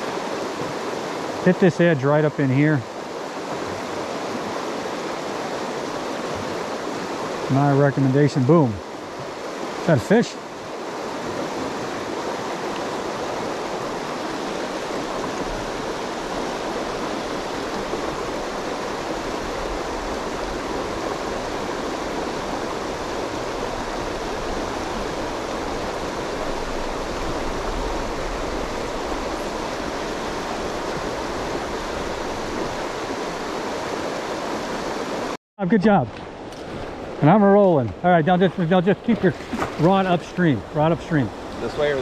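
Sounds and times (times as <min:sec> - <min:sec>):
water rushing over rocks: 0:00.0 - 0:42.0.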